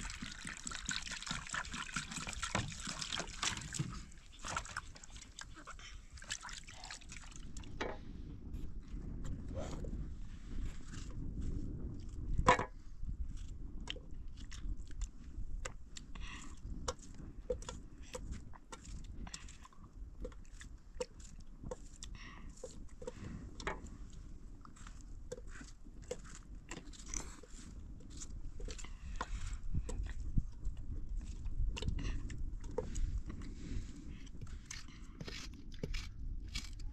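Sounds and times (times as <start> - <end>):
tomatoes squelching: 34.6 - 36.8.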